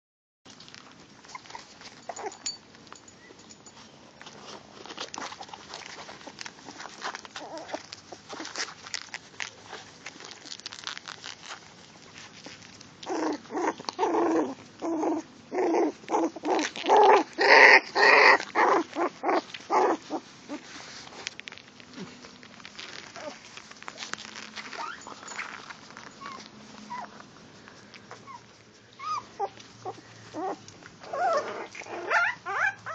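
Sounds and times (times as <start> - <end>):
rustling of puppies on denim: 0.5 - 32.9
puppy yipping: 1.3 - 2.6, 7.4 - 8.6, 13.1 - 20.7, 24.6 - 27.2, 28.1 - 32.9.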